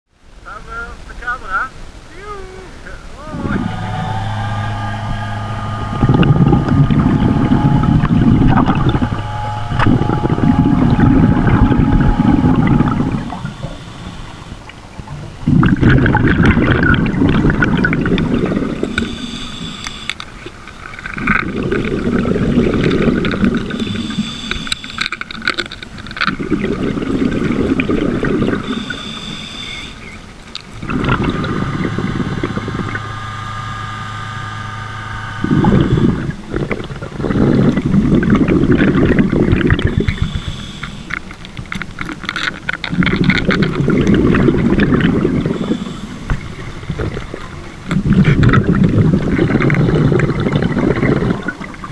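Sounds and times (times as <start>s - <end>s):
low steady hum: 0.1s - 51.9s
exhaled bubbles rumbling: 3.0s - 51.9s
regulator inhale hiss: 11.8s - 14.7s, 18.8s - 20.2s, 23.7s - 25.2s, 28.5s - 30.3s, 39.6s - 41.5s, 45.4s - 46.9s.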